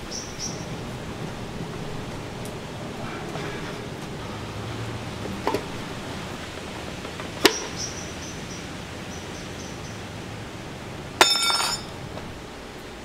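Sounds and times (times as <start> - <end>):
steady hiss: 0.0 - 13.0
glass clinks ringing: 11.2 - 12.0.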